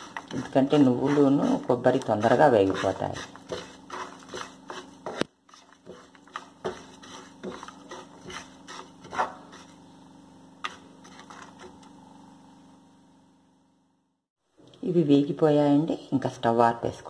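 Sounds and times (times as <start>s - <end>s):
spatula scraping seeds in pan: 0.0s - 9.9s, 10.6s - 11.8s.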